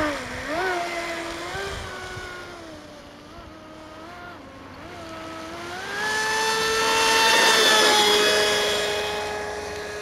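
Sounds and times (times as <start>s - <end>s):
electric motor whining: 0.0s - 10.0s.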